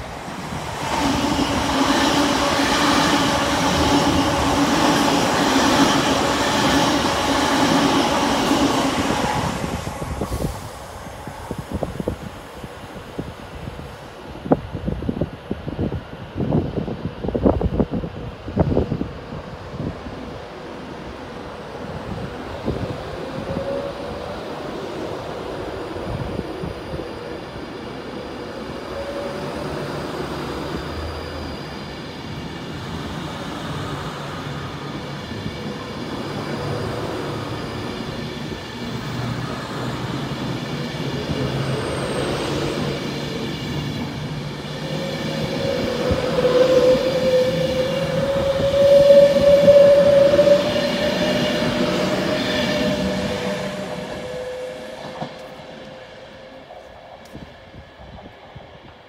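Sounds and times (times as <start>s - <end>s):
electric train pulling out: 0.0s - 13.3s, 21.1s - 58.6s
rising whine: 41.0s - 57.4s.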